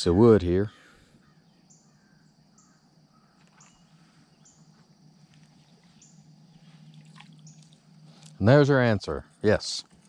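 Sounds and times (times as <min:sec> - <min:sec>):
faint steady high hum: 0:00.0 - 0:10.0
insect chirping: 0:00.0 - 0:10.0.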